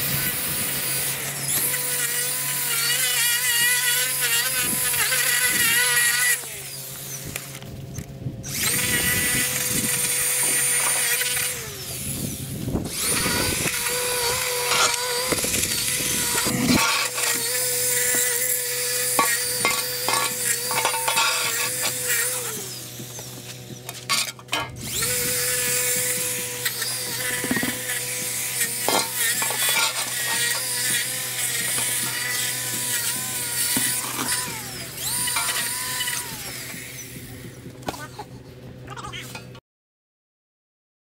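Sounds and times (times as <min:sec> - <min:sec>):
string trimmer motor whine: 0:00.0 - 0:39.6.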